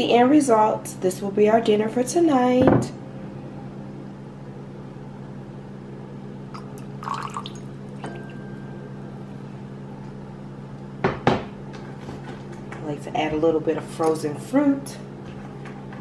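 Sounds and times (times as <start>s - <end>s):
low steady hum: 0.0s - 16.0s
wine glass clinking: 6.6s - 9.0s.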